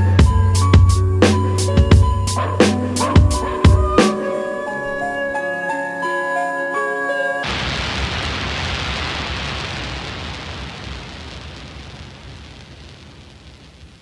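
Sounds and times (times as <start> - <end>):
rain-like hiss: 7.4 - 14.0.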